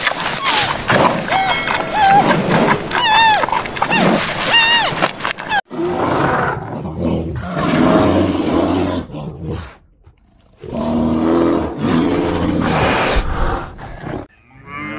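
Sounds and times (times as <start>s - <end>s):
big cat roaring: 5.5s - 14.3s.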